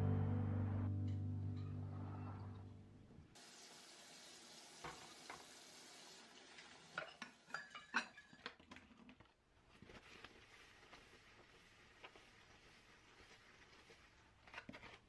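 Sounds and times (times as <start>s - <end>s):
dishes and glassware clinking: 7.0s - 8.6s.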